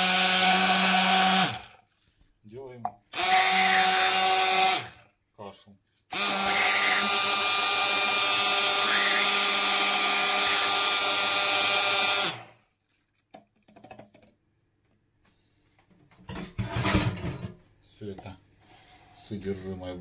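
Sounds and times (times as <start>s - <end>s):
immersion blender running: 0.0s - 1.8s, 3.1s - 5.0s, 6.1s - 12.6s.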